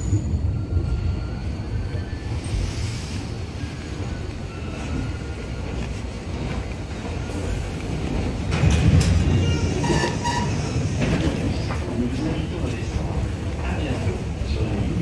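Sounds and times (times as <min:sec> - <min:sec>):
train rumbling at platform: 0:00.0 - 0:15.0
train doors clattering open: 0:04.7 - 0:14.8.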